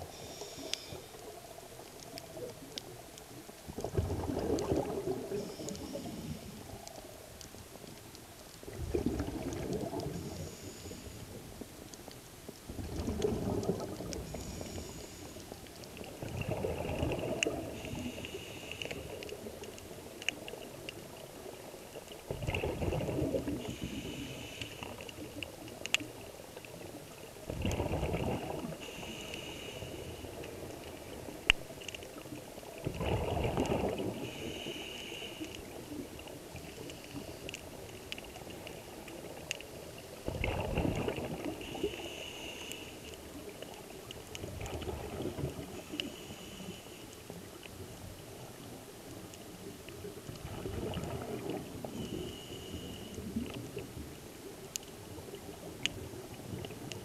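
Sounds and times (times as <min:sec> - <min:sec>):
hissing inhale through regulator: 0:00.1 - 0:01.2, 0:05.3 - 0:06.9, 0:10.1 - 0:11.4, 0:14.2 - 0:15.7, 0:17.2 - 0:19.4, 0:23.4 - 0:25.2, 0:28.6 - 0:30.7, 0:33.9 - 0:35.8, 0:41.5 - 0:43.2, 0:45.8 - 0:47.3, 0:51.8 - 0:53.6
bubbling exhaled air underwater: 0:03.7 - 0:06.8, 0:08.6 - 0:11.0, 0:12.7 - 0:15.1, 0:15.9 - 0:19.6, 0:22.2 - 0:25.8, 0:26.7 - 0:31.4, 0:32.2 - 0:39.5, 0:40.1 - 0:46.8, 0:49.9 - 0:54.0.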